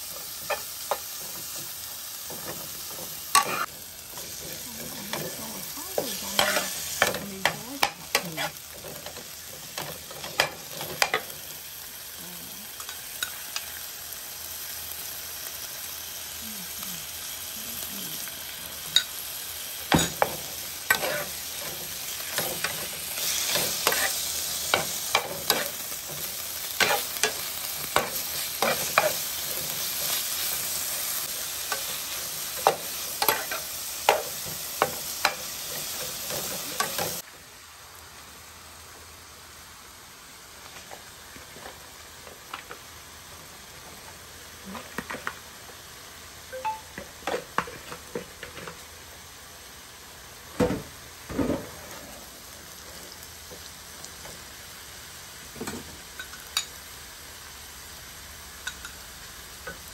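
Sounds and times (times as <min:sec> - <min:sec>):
meat sizzling in a frying pan: 0:00.0 - 0:59.9
metal spatula scraping a pan: 0:20.9 - 0:26.2.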